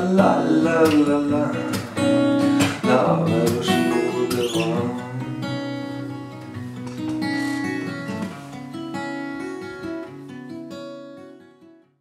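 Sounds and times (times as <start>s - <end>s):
acoustic guitar strummed and picked: 0.0s - 12.0s.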